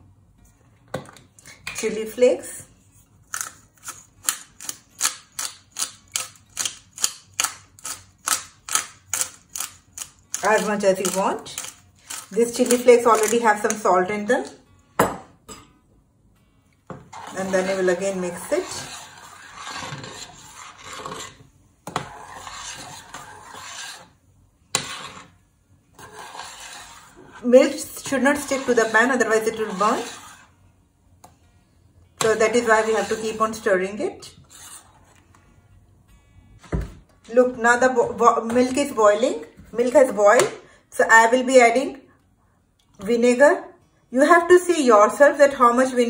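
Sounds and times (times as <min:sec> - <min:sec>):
metal spoon scraping a pot: 0:17.1 - 0:30.6, 0:32.2 - 0:35.2.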